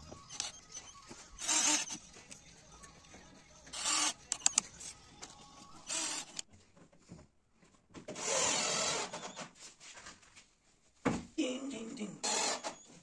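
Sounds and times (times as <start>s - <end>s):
cordless drill driving screws: 1.4s - 2.0s, 3.8s - 4.6s, 5.8s - 6.4s, 8.2s - 9.3s, 12.2s - 12.9s.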